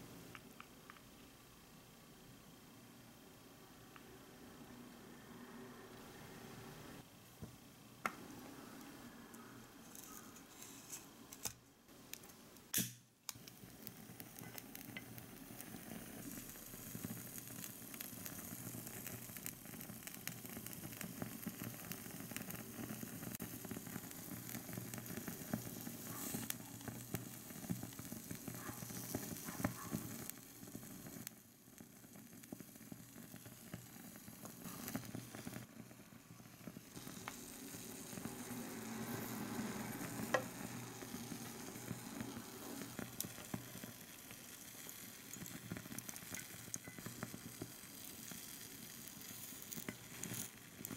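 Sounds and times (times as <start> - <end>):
burning fuel hissing and crackling: 0.0 - 50.9
burner lighting burst: 7.9 - 50.9.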